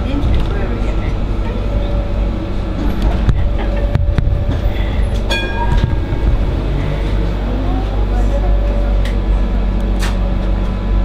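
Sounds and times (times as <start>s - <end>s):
tram motor and wheel rumble: 0.0s - 11.0s
short high ringing tone: 4.7s - 7.0s.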